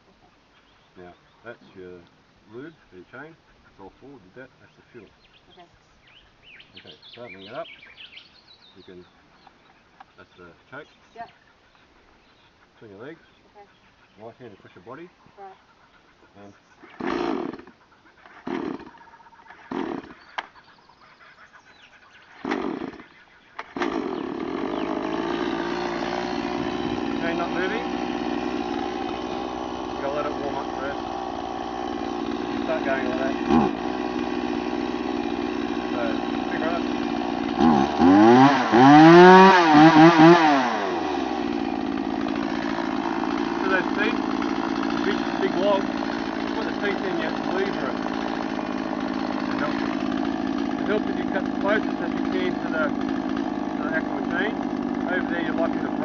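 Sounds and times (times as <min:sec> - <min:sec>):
chainsaw engine running: 0:16.9 - 0:20.7, 0:22.4 - 0:56.0
starter cord pulls: 0:42.2 - 0:56.0.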